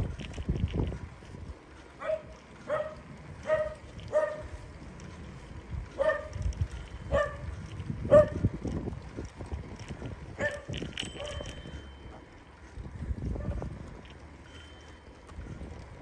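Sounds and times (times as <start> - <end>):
dog barking: 2.0 - 4.5, 6.0 - 6.4, 7.1 - 7.4, 8.1 - 8.4.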